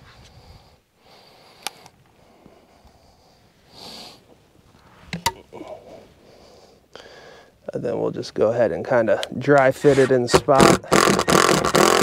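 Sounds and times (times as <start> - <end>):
person sniffing: 3.7 - 4.2.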